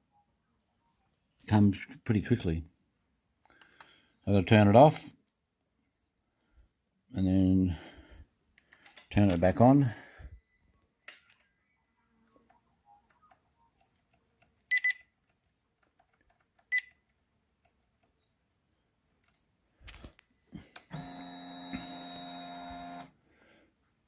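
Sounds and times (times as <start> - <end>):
fuel pump electric hum: 20.7 - 23.1.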